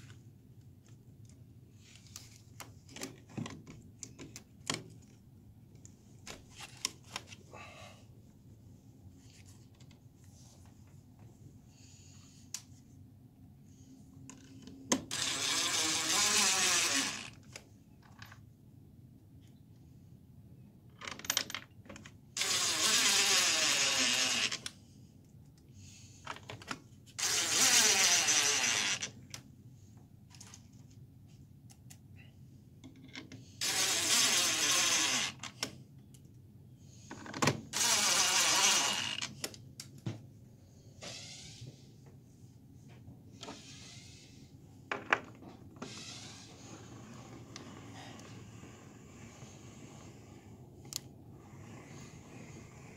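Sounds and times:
power driver driving screws: 15.1s - 17.3s, 22.4s - 24.7s, 27.2s - 29.1s, 33.6s - 35.4s, 37.7s - 39.4s.

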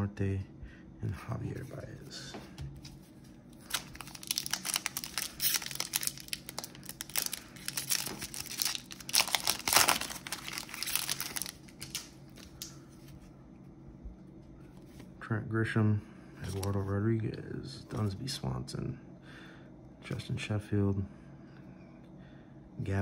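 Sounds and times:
foil wrapper crinkling and tearing: 3.4s - 12.9s.

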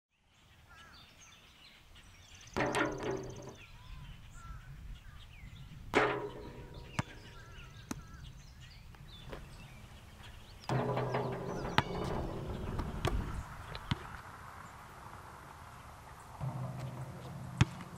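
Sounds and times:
birds chirping and warbling: 0.1s - 17.9s
sudden ringing knocks: 2.6s - 3.6s, 6.0s - 7.6s, 10.7s - 13.5s.

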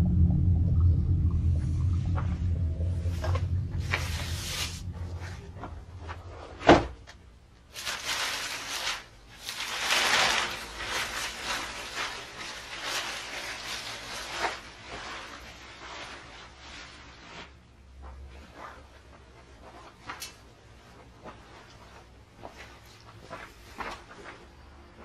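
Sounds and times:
plastic sheet rustling and crinkling: 3.1s - 22.1s.

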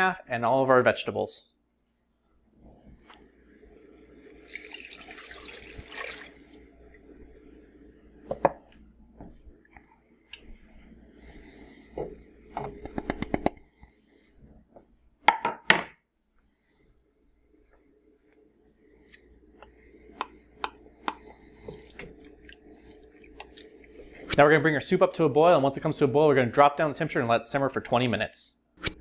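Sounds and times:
low steady hum: 0.0s - 29.0s
liquid poured into a pot: 3.7s - 7.1s.

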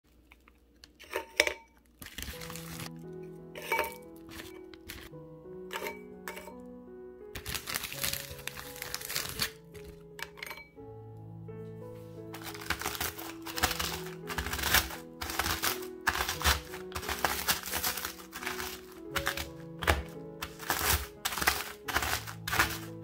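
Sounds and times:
biscuits cracking and crunching: 0.1s - 3.1s, 7.3s - 10.4s, 12.3s - 23.0s
background music: 1.3s - 23.0s
plastic bag crinkling: 1.9s - 3.1s, 7.4s - 10.3s, 12.3s - 23.0s.

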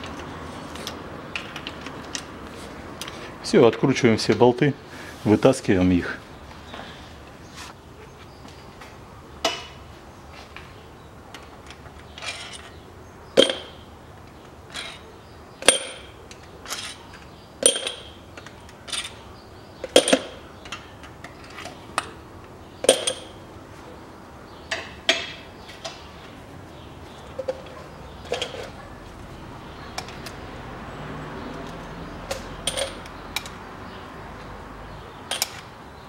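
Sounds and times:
metal bolts clinking: 11.4s - 12.8s, 13.4s - 13.8s, 14.7s - 19.2s, 19.8s - 22.2s, 22.8s - 23.4s, 27.2s - 28.9s, 31.6s - 33.6s, 35.2s - 35.8s.

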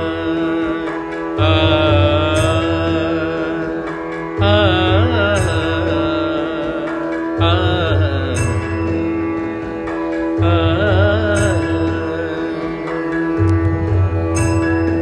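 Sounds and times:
indian classical background music: 0.0s - 15.0s.

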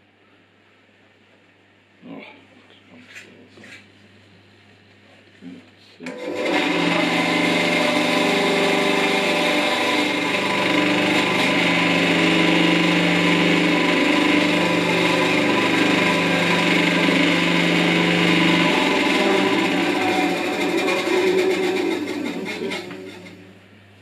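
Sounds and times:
bandsaw motor running: 6.0s - 23.8s.

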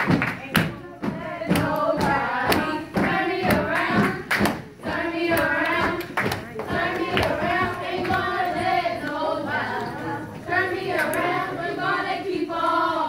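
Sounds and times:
stomps and claps: 0.0s - 9.2s
women chanting in unison: 0.6s - 13.0s.

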